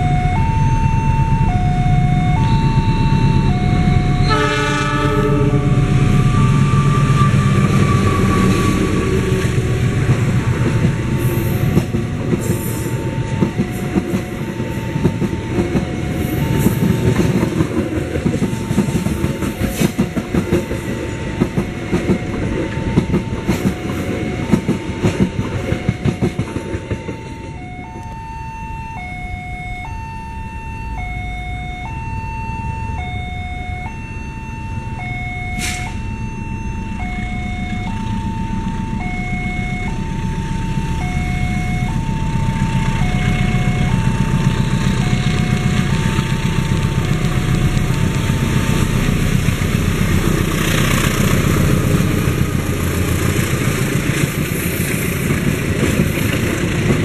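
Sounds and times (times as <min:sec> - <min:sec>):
level-crossing alarm chiming: 0:00.0 - 0:52.7
distant train rumble: 0:00.0 - 0:57.0
train wheels clattering over rails: 0:07.6 - 0:27.6, 0:44.1 - 0:57.0.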